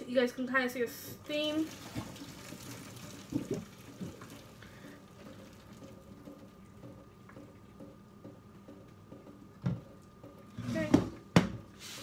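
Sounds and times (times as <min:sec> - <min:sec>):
water draining into sink: 0:01.3 - 0:11.4.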